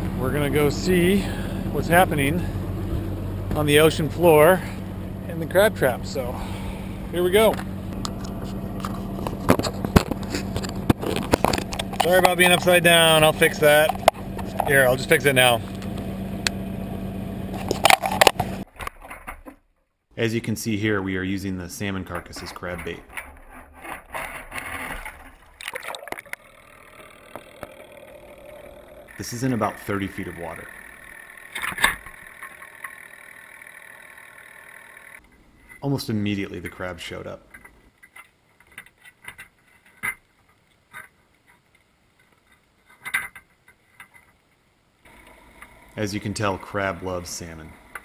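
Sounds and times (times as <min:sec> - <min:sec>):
sharp underwater clicks and knocks: 0:07.6 - 0:12.8, 0:13.8 - 0:14.8
water sloshing and gurgling: 0:24.0 - 0:26.6
splash into water: 0:25.6 - 0:26.3.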